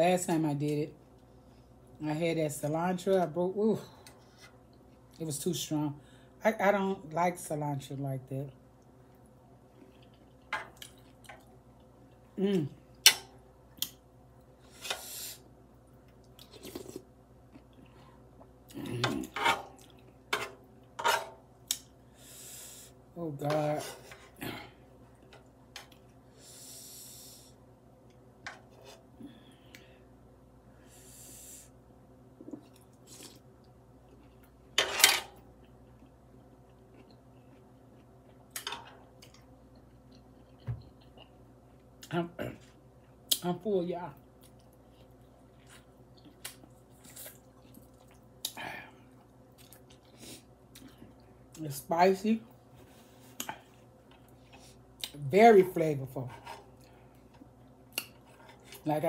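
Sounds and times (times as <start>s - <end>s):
chewing: 9.2s - 12.3s, 35.6s - 42.1s, 44.3s - 51.3s.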